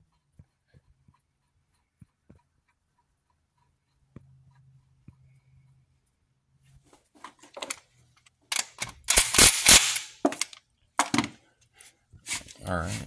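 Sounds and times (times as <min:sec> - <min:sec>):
metallic clicks of tools handled: 0:07.5 - 0:11.3.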